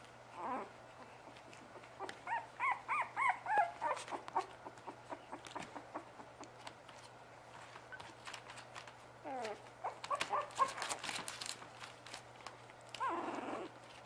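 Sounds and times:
puppies whimpering: 0.3 - 6.5, 9.2 - 11.0, 13.0 - 13.8
paws rustling on newspaper: 0.9 - 14.0.

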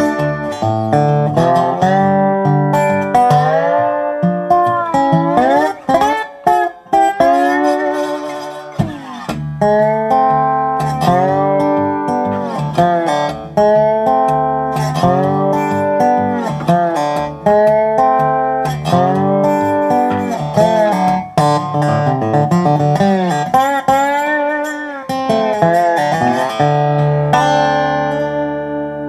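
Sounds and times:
slide resonator guitar: 0.0 - 29.0.

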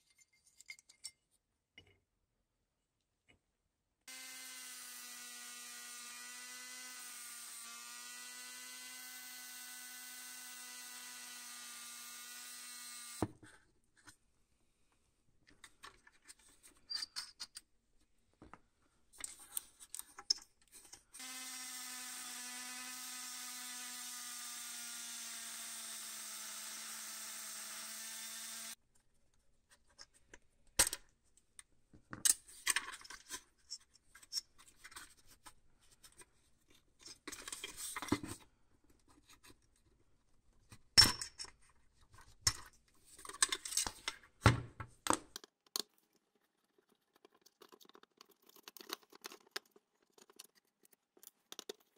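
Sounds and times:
rotary tool running: 4.1 - 13.2, 21.2 - 28.8.

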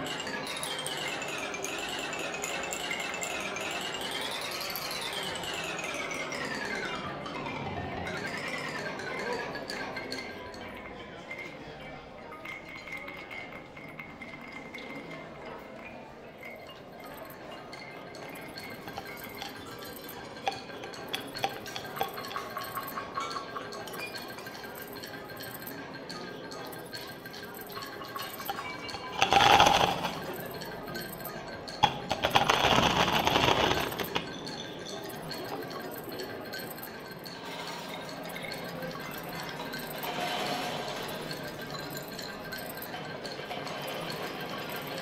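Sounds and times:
light metallic clinks: 16.4 - 40.0
high steady ringing tone: 16.8 - 43.1
hard pieces rattling in steel bowl: 18.5 - 23.3, 27.8 - 36.0.

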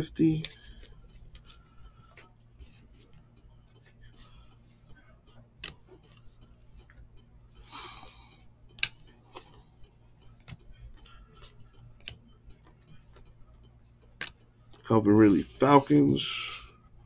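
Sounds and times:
cards sliding rustle: 0.4 - 1.6
trading cards clicking as flipped: 0.4 - 3.1, 5.6 - 6.2, 8.7 - 9.6, 10.3 - 13.3, 14.1 - 14.8.

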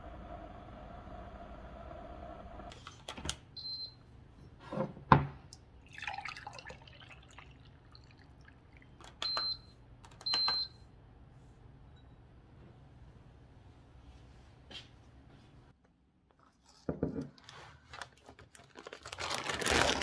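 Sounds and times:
tea pouring into a mug: 5.8 - 9.0.

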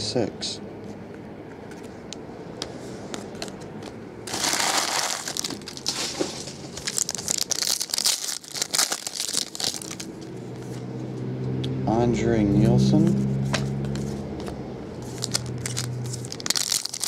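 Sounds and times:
foil wrapper crinkling and tearing: 4.3 - 10.3, 15.1 - 17.0.

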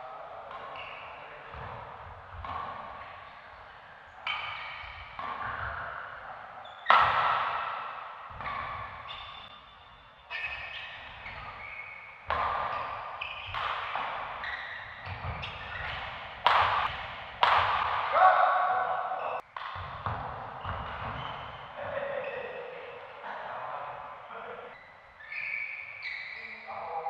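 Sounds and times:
shoes squeaking on court: 0.5 - 17.6, 18.9 - 23.0, 24.7 - 26.9
racket striking shuttlecock: 12.2 - 21.2.

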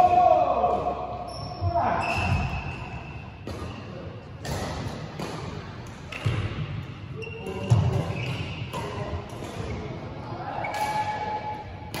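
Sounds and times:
shoes squeaking on floor: 1.2 - 3.2, 7.2 - 8.9.

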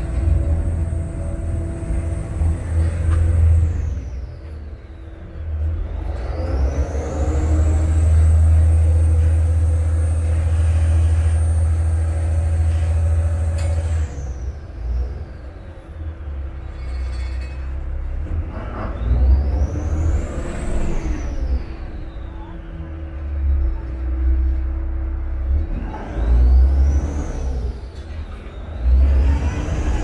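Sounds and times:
boat diesel engine with whine: 0.0 - 30.0.

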